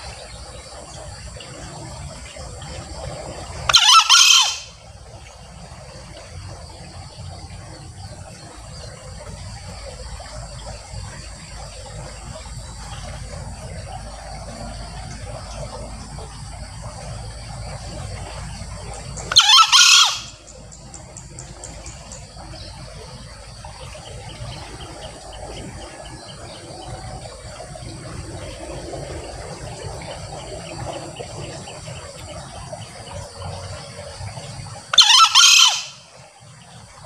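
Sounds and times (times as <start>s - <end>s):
junglefowl crowing: 3.7s - 4.8s, 19.3s - 20.4s, 34.9s - 36.0s.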